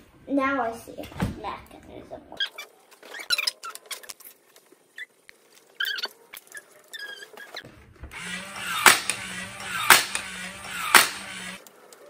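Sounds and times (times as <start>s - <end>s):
small electric motor humming: 8.2s - 11.6s
spring launcher snapping: 8.6s - 11.6s.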